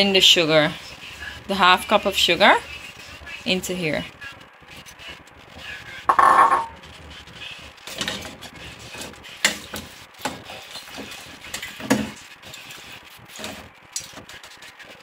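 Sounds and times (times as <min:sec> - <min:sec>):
thick stew stirring: 0:00.0 - 0:03.5, 0:04.1 - 0:14.9
metal spoon scraping a pot: 0:05.6 - 0:06.8.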